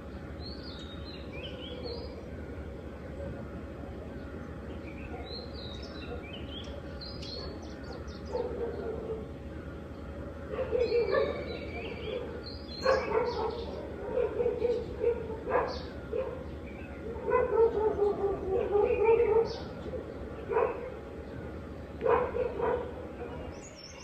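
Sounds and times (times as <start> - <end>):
small birds chirping: 0.0 - 24.0
dog barking: 7.4 - 9.3, 10.5 - 16.5, 17.1 - 19.8, 20.5 - 21.0, 22.0 - 23.5.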